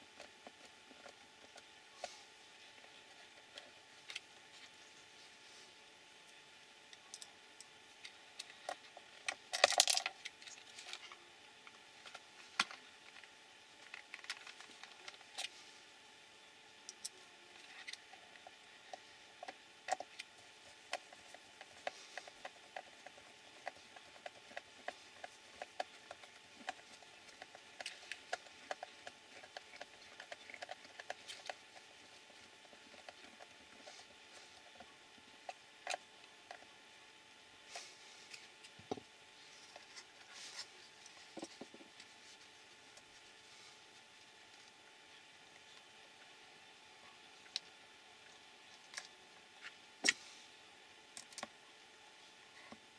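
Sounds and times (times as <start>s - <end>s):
faint steady hum: 0.0s - 52.9s
plastic parts and tools clattering: 8.4s - 11.0s.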